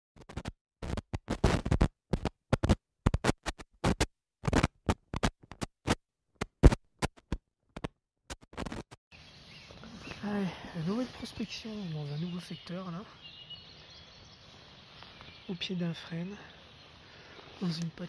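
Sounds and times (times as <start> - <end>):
old film crackle and pops: 0.2 - 9.0.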